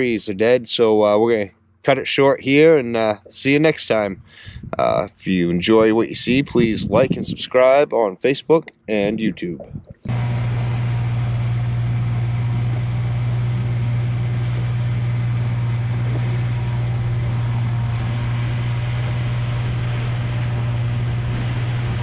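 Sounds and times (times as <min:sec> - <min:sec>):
outboard motor humming: 0:08.9 - 0:22.0
wind and water rushing: 0:13.9 - 0:22.0.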